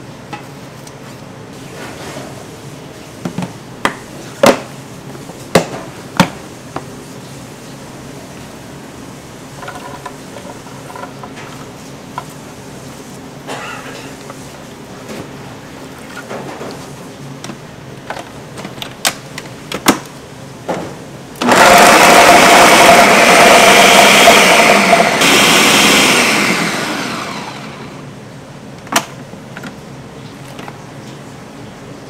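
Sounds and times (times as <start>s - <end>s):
blender motor winding down: 21.4s - 28.0s
blender running: 21.4s - 28.1s.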